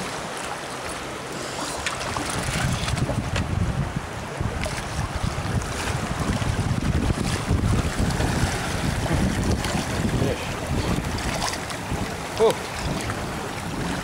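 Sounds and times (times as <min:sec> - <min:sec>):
fish thrashing and splashing: 0:01.4 - 0:03.3
wind buffeting microphone: 0:02.0 - 0:14.0.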